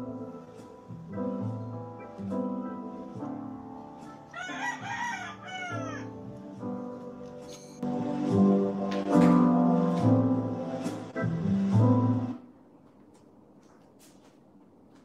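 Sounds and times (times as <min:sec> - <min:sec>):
soft instrumental music: 0:00.0 - 0:12.5
rooster crowing: 0:04.3 - 0:06.2.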